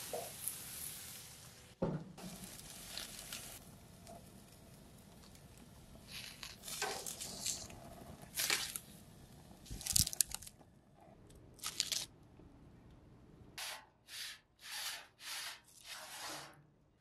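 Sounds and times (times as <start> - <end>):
dry corn husks crunching: 6.1 - 7.7, 9.7 - 10.5, 11.6 - 12.1.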